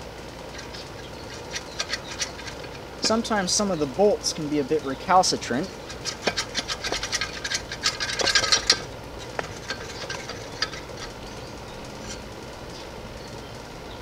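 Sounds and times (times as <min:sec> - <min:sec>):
metallic clicks and scrapes of a nut: 0:00.5 - 0:03.3, 0:05.7 - 0:12.3.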